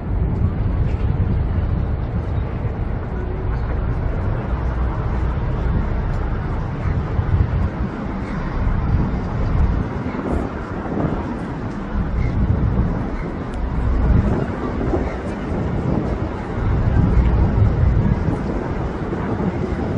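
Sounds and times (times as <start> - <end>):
faint murmur of crowd voices: 0.0 - 19.9
low traffic rumble: 0.0 - 19.9.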